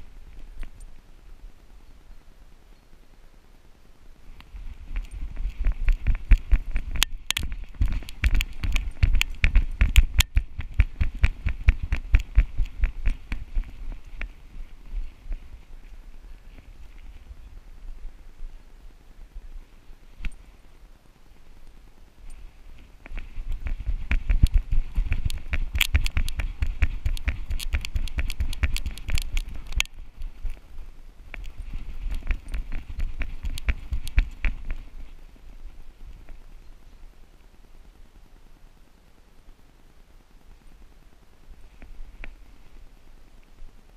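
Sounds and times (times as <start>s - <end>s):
rhythmic thumps and clicks: 5.0s - 14.3s, 23.0s - 30.6s, 31.4s - 34.9s.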